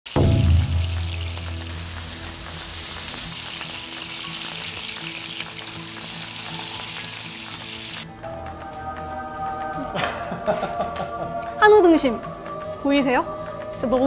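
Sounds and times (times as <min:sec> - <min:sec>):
beef sizzling in frying pan: 0:00.1 - 0:08.1.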